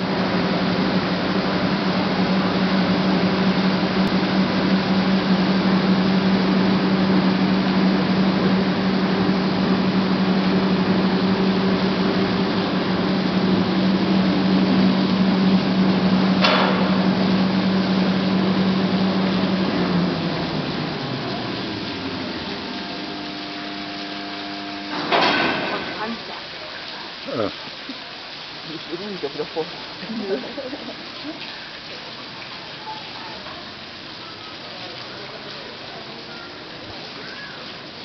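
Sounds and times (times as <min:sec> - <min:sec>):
machinery humming: 0:00.0 - 0:26.6.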